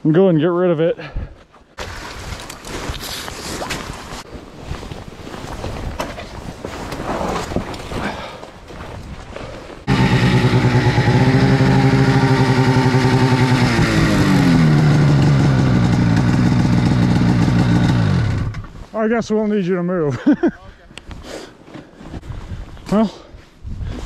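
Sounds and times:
branches cracking and scraping: 1.8 - 9.4
snowmobile engine running: 9.9 - 18.6.

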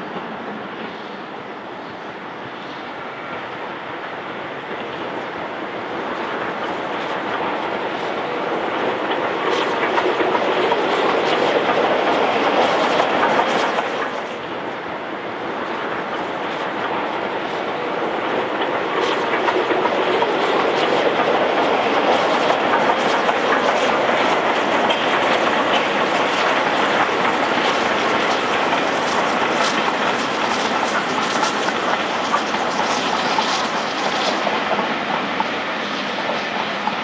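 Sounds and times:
steam train running past: 0.0 - 37.0
wheels clicking over rail joints: 18.1 - 35.6.

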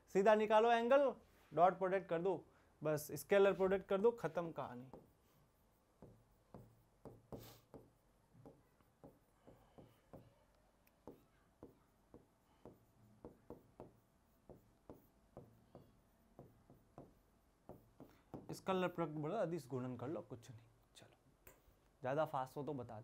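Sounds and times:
stylus tapping on screen: 10.9 - 18.6.

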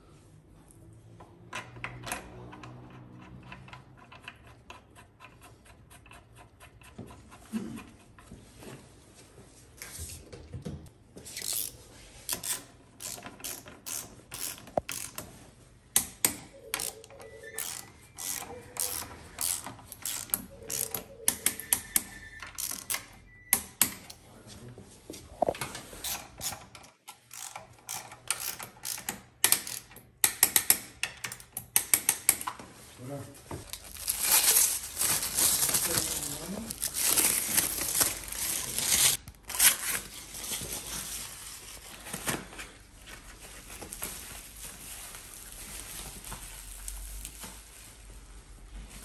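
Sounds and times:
socket ratchet wrench clicking: 11.4 - 15.2, 17.6 - 21.6, 27.3 - 32.3.

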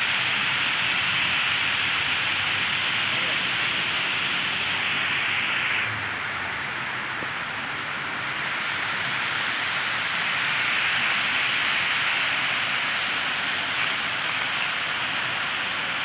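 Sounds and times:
water cascading down fountain: 9.8 - 16.0.

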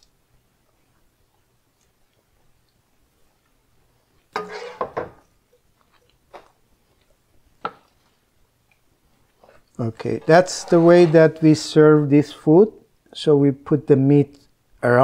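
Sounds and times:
ladle scraping a metal pot: 4.4 - 5.1, 10.1 - 11.6.

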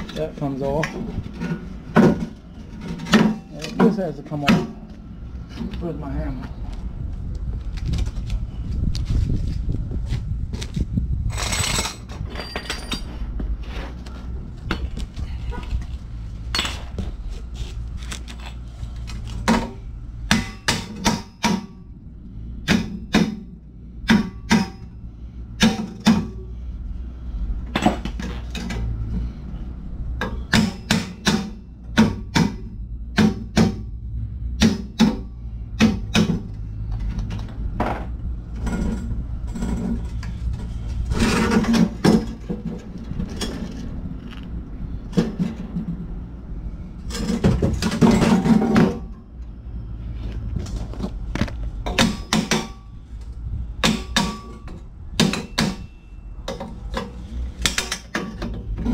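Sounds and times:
rough metal clatter: 11.3 - 13.3, 34.7 - 43.9, 47.0 - 49.2
hammer clanking on metal pipe: 24.1 - 24.9, 51.9 - 52.8, 53.8 - 58.5.

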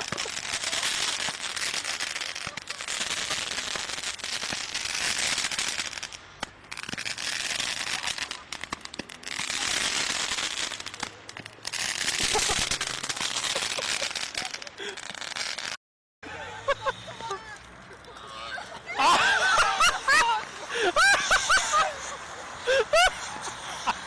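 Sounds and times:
fireworks hissing and crackling: 0.0 - 15.8, 16.4 - 24.0.

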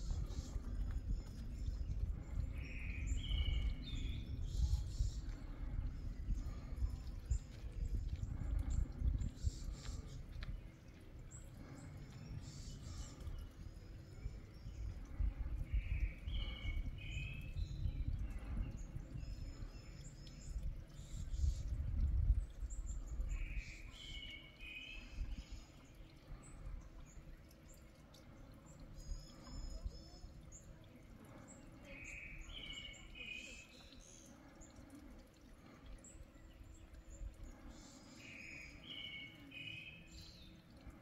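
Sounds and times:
wind gusting against microphone: 0.0 - 11.1, 12.2 - 23.8
birds chirping: 0.0 - 41.0.

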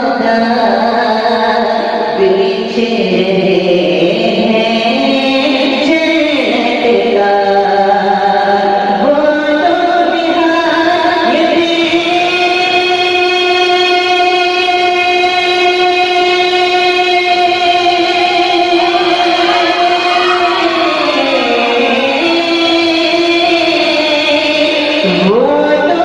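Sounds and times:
man singing solo: 14.8 - 26.0.

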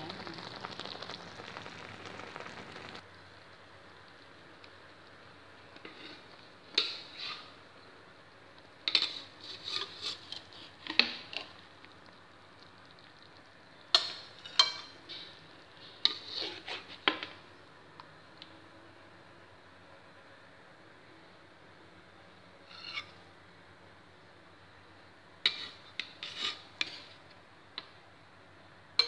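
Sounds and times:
metal spoon scraping a wok: 8.9 - 11.0, 16.0 - 17.1, 22.6 - 23.2, 25.4 - 27.2.

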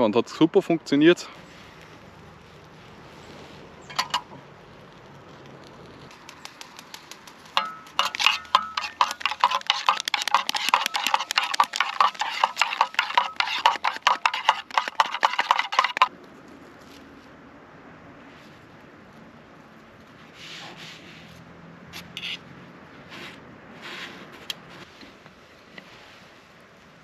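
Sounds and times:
fork scraping in a tin: 7.6 - 16.1.

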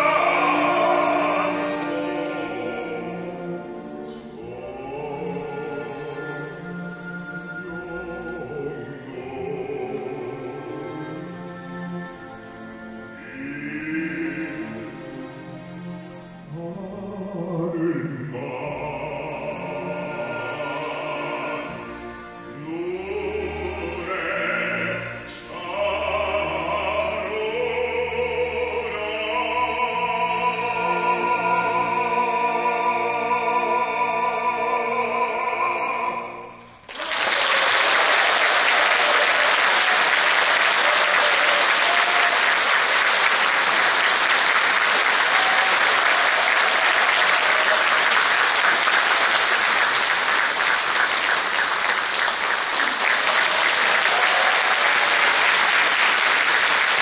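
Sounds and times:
baritone singing with orchestra: 0.0 - 36.8
audience applauding: 36.8 - 57.0.

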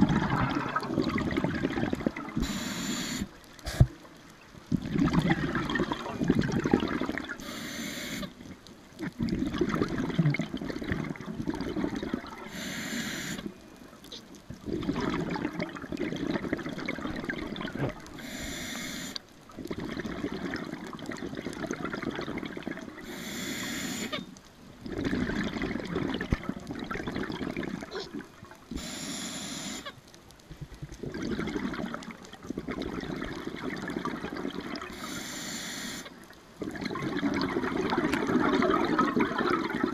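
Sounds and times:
exhale bubbling underwater: 0.0 - 4.0, 4.6 - 7.5, 9.0 - 13.5, 14.6 - 18.8, 19.6 - 23.2, 24.8 - 28.9, 31.0 - 35.2, 36.6 - 39.9
regulator inhale hiss: 2.4 - 3.9, 7.4 - 8.4, 12.5 - 13.5, 18.2 - 19.2, 23.0 - 24.2, 28.7 - 29.9, 34.9 - 36.2.

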